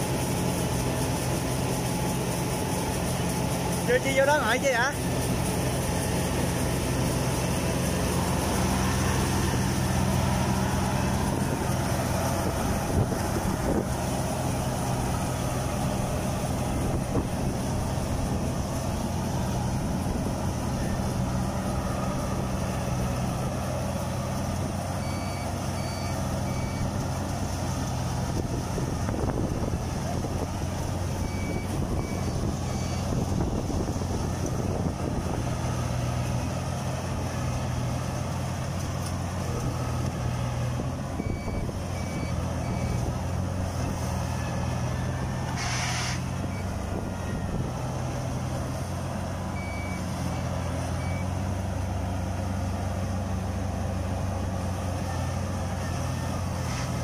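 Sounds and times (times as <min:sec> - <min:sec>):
diesel engine running: 0:00.0 - 0:57.0
short electronic beeps: 0:25.0 - 0:27.0, 0:31.2 - 0:33.2, 0:41.2 - 0:43.1.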